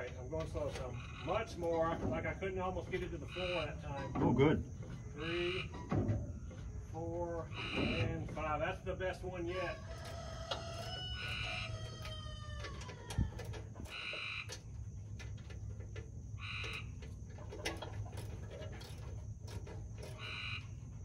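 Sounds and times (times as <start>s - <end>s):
steady low hum: 0.0s - 21.0s
rooster crowing: 9.6s - 13.6s.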